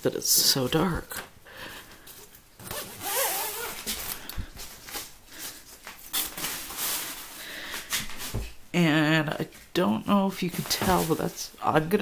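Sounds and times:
fabric rustling: 2.1 - 8.6, 10.3 - 11.9
zipper being pulled: 2.6 - 4.0.

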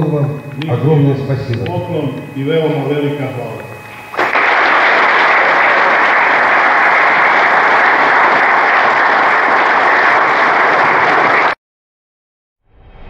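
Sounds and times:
audience applauding: 4.1 - 11.6.

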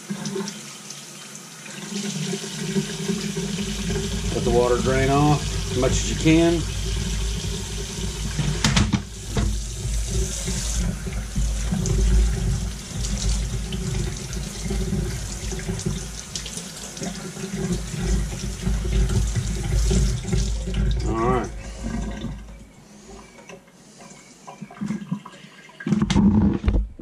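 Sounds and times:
water running from faucet: 0.0 - 25.9
water splashing in metal sink: 1.6 - 22.7.

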